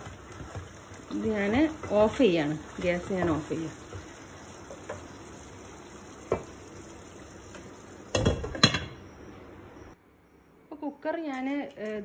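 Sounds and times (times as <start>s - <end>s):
food sizzling in a pot: 0.0s - 9.3s.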